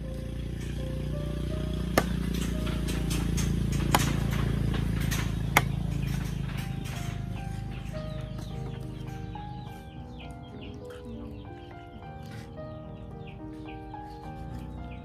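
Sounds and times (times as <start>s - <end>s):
cleaver chopping meat on wood: 1.8s - 2.3s, 3.8s - 4.3s, 5.4s - 5.9s.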